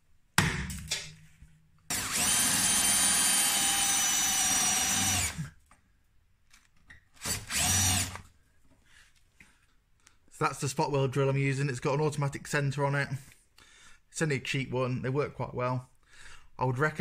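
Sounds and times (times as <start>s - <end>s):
cordless drill motor whining: 1.9s - 5.5s, 7.2s - 8.3s.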